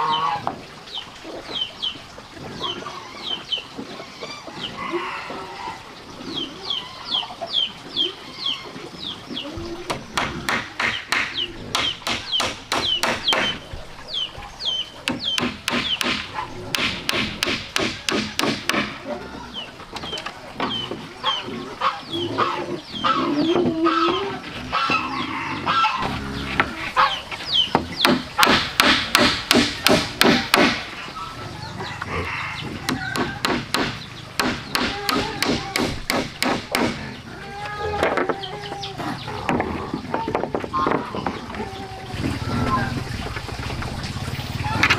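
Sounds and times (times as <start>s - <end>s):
chickens clucking: 0.0s - 28.9s, 29.5s - 44.9s
hammer driving nails into wood: 15.1s - 19.0s, 28.1s - 30.8s.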